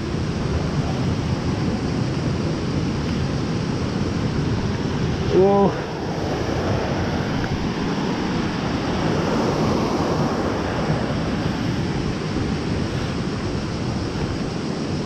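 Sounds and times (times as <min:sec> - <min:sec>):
mountain river rushing: 0:00.0 - 0:15.0
wind buffeting microphone: 0:00.0 - 0:15.0.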